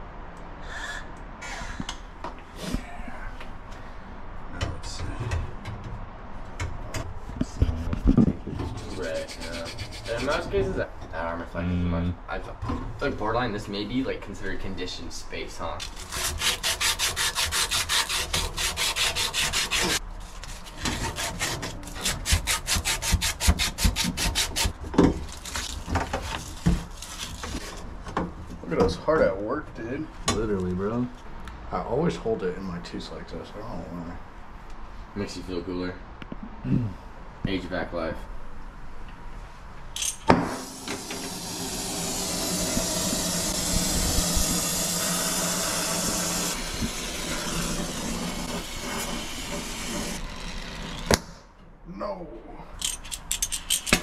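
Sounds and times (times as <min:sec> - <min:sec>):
abrasive pad scrubbing copper pipe: 0:08.6 - 0:10.6, 0:15.8 - 0:20.0, 0:20.6 - 0:24.8, 0:41.0 - 0:50.4
torch flame hissing: 0:40.4 - 0:50.3.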